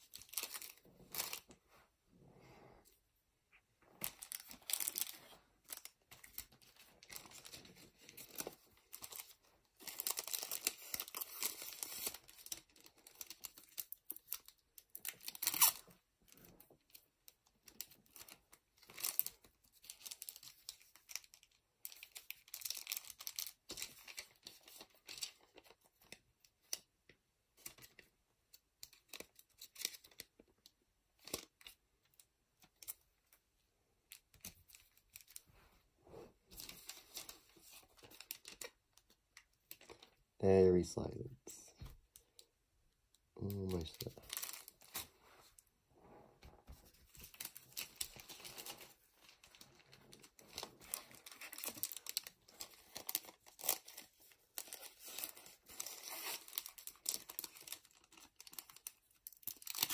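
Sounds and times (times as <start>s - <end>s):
plastic packs crinkling: 0.0s - 1.6s, 4.0s - 15.8s, 43.4s - 45.6s, 46.8s - 59.9s.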